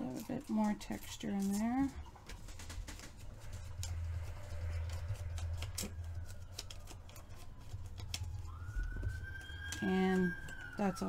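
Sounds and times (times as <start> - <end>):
paper tearing and rustling: 0.0 - 11.0
steady low rumble: 3.1 - 7.3.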